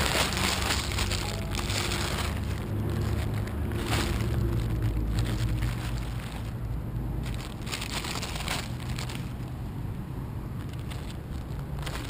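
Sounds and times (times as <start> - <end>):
fabric crinkling: 0.0 - 9.6, 10.4 - 12.0.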